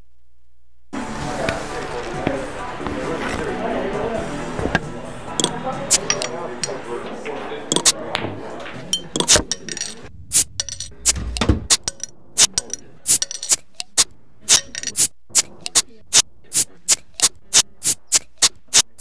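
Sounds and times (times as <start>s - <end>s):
sharp clicking strikes: 4.6s - 6.8s, 7.7s - 8.0s, 8.9s - 19.0s
brief low rumble: 10.1s - 13.0s.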